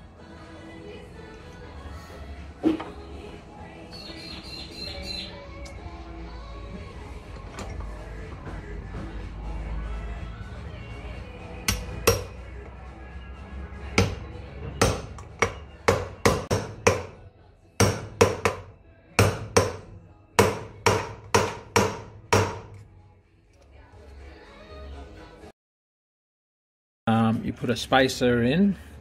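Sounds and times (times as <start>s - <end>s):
hammer striking metal rod: 11.7s - 12.4s, 14.8s - 17.2s, 17.8s - 22.8s.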